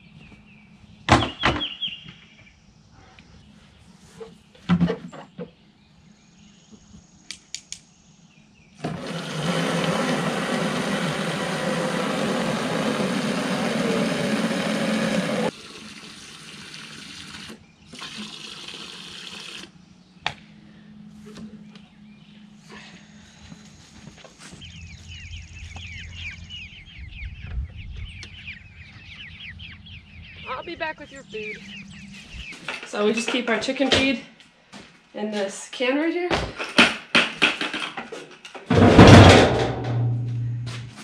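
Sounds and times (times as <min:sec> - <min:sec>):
hose water pouring into watering can: 0:15.5 - 0:19.7.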